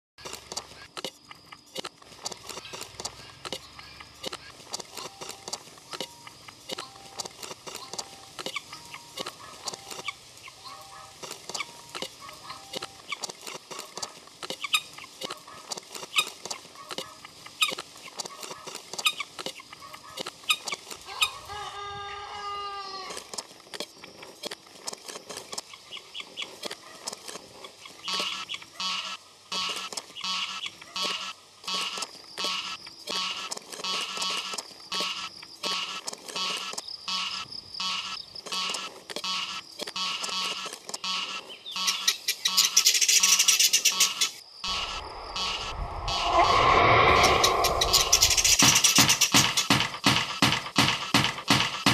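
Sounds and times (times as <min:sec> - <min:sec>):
rooster crowing: 0:21.1 - 0:23.1.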